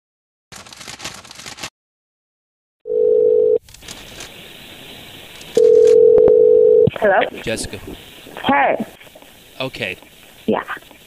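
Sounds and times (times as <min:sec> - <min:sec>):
paper crumpling: 0:00.5 - 0:01.7, 0:03.6 - 0:04.4
telephone ringback tone: 0:02.9 - 0:03.6, 0:05.6 - 0:06.9
telephone line hiss: 0:02.9 - 0:08.4.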